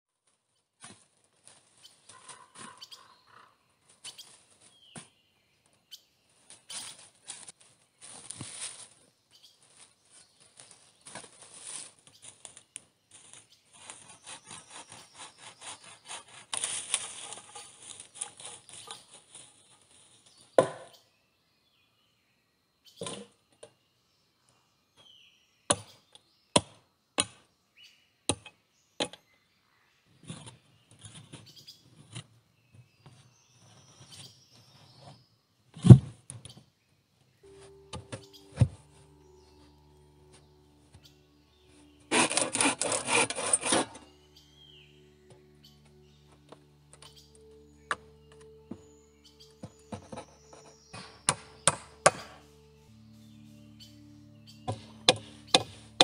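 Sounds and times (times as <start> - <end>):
shovel scraping soil and leaves: 6.5 - 20.4, 41.6 - 44.8
spade chopping into earth: 50.9 - 52.4, 54.7 - 55.8.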